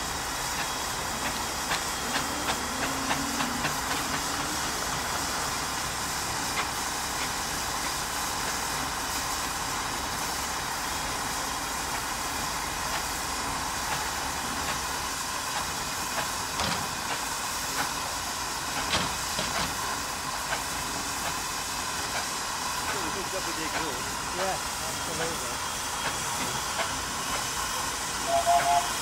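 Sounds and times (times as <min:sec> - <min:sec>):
steam engine beats: 0:00.0 - 0:10.2, 0:17.0 - 0:29.0
steam hissing: 0:00.0 - 0:29.0.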